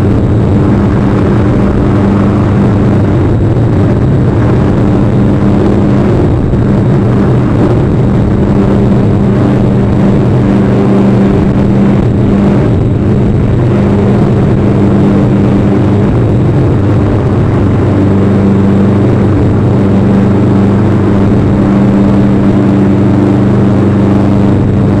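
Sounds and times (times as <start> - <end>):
loud low hum with rushing noise: 0.0 - 25.0.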